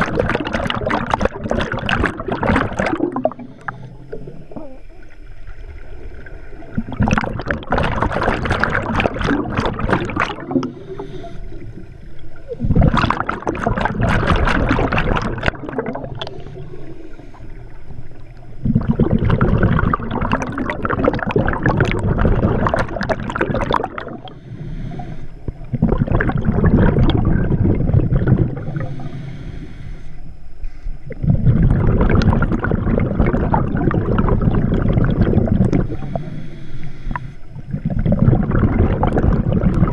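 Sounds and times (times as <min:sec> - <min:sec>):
diver exhaling bubbles: 0:00.0 - 0:29.7, 0:31.0 - 0:39.9
diver inhaling through regulator: 0:03.0 - 0:04.8, 0:10.4 - 0:13.0, 0:16.0 - 0:17.9, 0:24.0 - 0:26.1, 0:26.7 - 0:32.0, 0:35.2 - 0:38.6.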